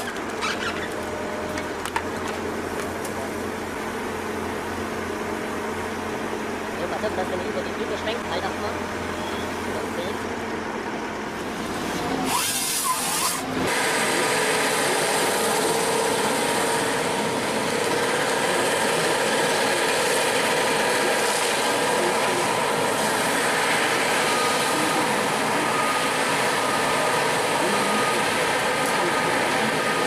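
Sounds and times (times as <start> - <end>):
power saw cutting wood: 11.7 - 30.0.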